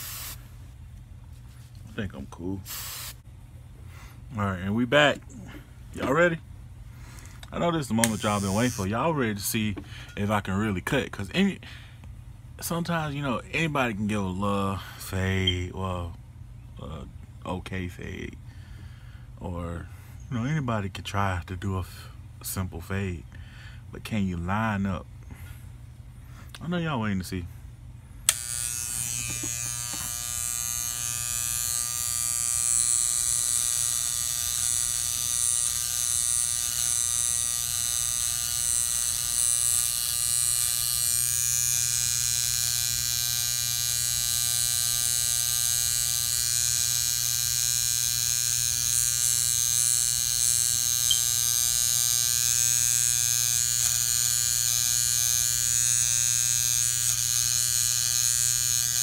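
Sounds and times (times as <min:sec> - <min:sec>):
electric hair trimmer buzzing: 0:00.0 - 0:00.4, 0:02.7 - 0:03.2, 0:07.6 - 0:09.1, 0:28.3 - 0:59.0.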